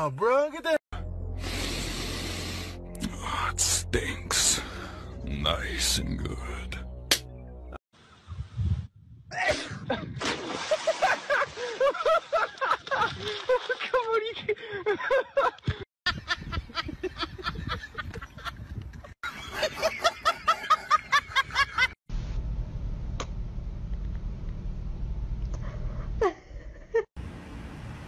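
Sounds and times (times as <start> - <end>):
steady low rumble: 1.0 - 7.8, 22.1 - 28.0
person laughing: 9.3 - 18.6, 26.2 - 27.1.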